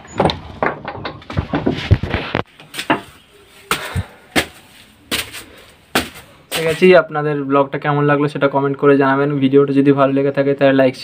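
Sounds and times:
knocks and clatter of walking: 0:00.0 - 0:06.8.

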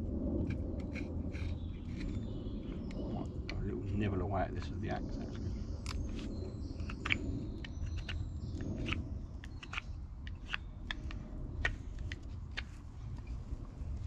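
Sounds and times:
knife whittling wood: 0:05.9 - 0:11.8.

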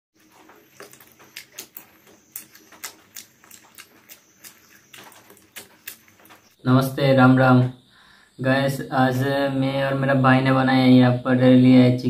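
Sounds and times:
man chewing and smacking: 0:00.2 - 0:06.6.

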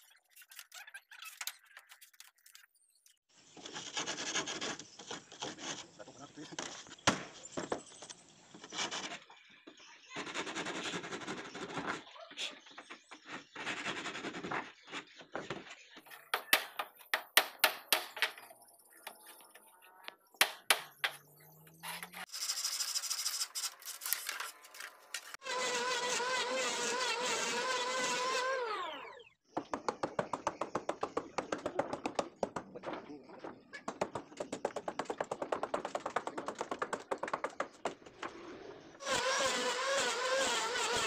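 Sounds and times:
hammer tapping nails: 0:20.4 - 0:21.2
hand plane scraping wood: 0:39.0 - 0:41.0.

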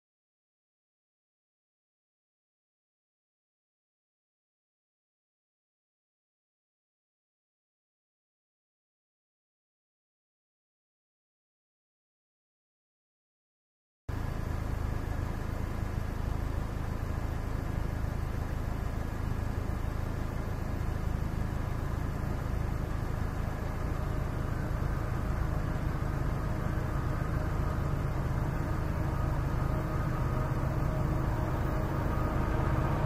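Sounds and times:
freight train diesel engines droning: 0:21.1 - 0:33.0.

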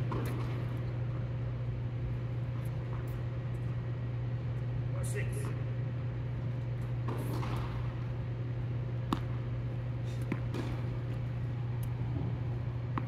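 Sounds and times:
ball bouncing: 0:00.0 - 0:00.8, 0:06.9 - 0:08.0, 0:09.0 - 0:09.5, 0:10.2 - 0:13.0
low hum: 0:00.0 - 0:13.0
racket striking ball: 0:07.0 - 0:08.0, 0:09.0 - 0:09.4, 0:10.2 - 0:11.3.

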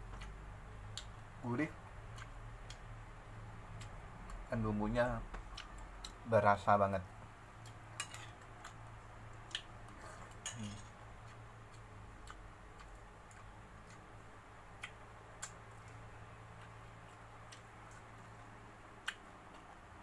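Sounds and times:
man eating by hand: 0:00.0 - 0:02.9, 0:03.6 - 0:06.9, 0:07.5 - 0:20.0
steady low hum: 0:00.0 - 0:20.0.

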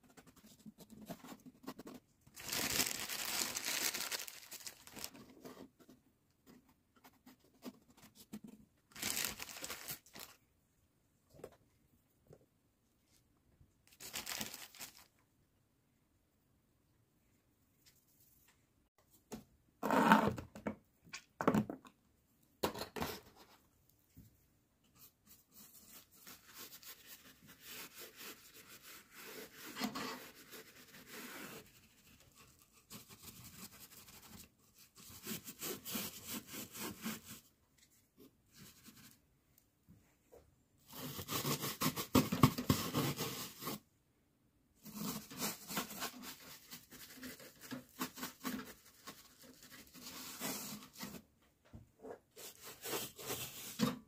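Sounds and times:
hand scraping and rubbing material: 0:24.8 - 0:39.4, 0:52.0 - 0:54.0.

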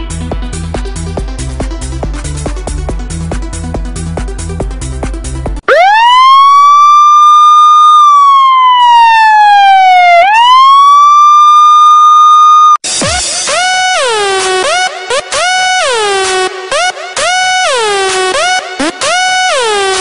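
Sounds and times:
electronic music with steady beat: 0:00.0 - 0:06.3, 0:12.8 - 0:20.0
wailing siren: 0:05.6 - 0:12.8, 0:13.5 - 0:20.0
music with falling glides: 0:12.8 - 0:20.0.

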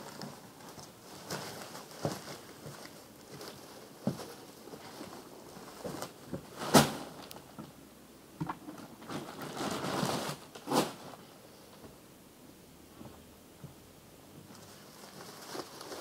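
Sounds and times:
plastic bag rustling: 0:00.0 - 0:07.3, 0:09.0 - 0:11.4, 0:14.5 - 0:16.0.

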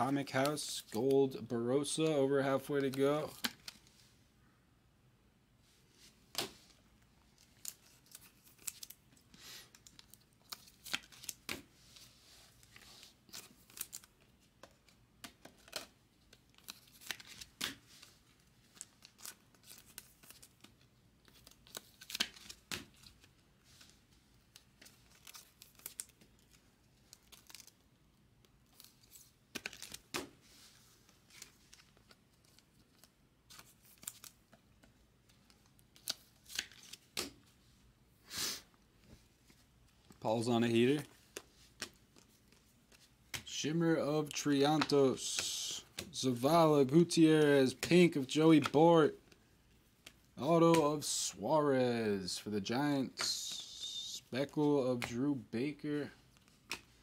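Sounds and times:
plastic sleeves rustling: 0:00.0 - 0:04.2, 0:05.6 - 0:51.5, 0:52.1 - 0:57.0.

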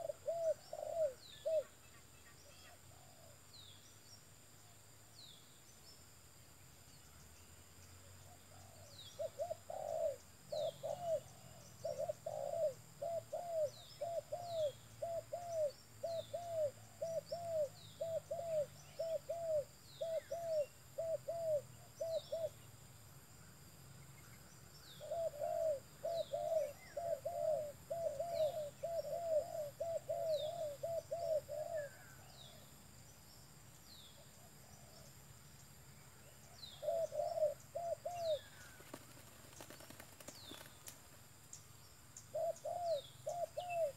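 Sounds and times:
dove cooing: 0:00.0 - 0:01.8, 0:08.3 - 0:22.6, 0:24.9 - 0:32.6, 0:36.6 - 0:40.6, 0:42.3 - 0:43.9.

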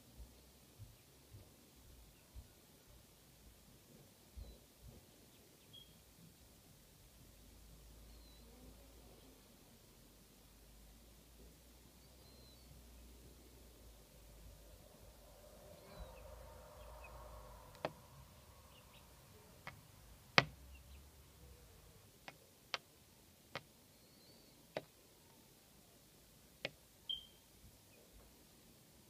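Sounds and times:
faint high chirps: 0:04.4 - 0:06.3, 0:08.0 - 0:09.4, 0:11.9 - 0:13.2, 0:14.4 - 0:19.7, 0:23.8 - 0:25.4, 0:27.0 - 0:28.2.

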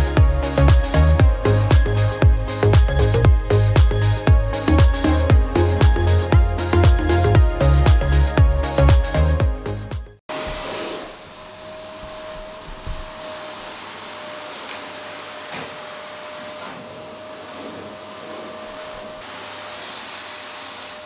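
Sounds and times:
vacuum cleaner running: 0:10.3 - 0:21.0.

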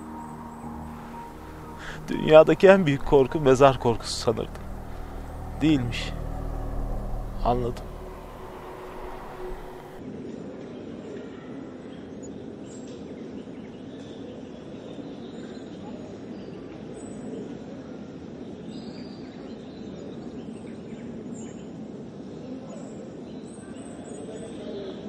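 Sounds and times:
low outdoor rush: 0:00.0 - 0:10.0.

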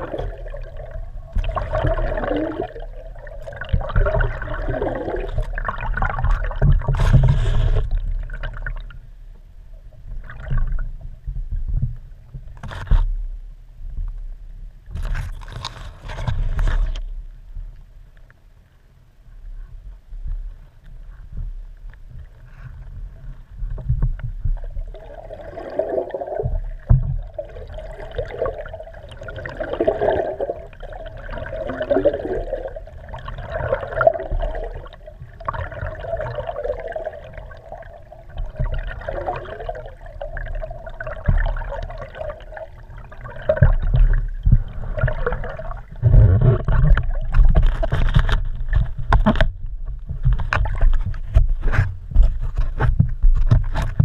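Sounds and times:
steady low rumble: 0:00.0 - 0:12.6, 0:17.1 - 0:25.4, 0:34.0 - 0:53.4
muffled underwater water sloshing: 0:00.0 - 0:54.0.

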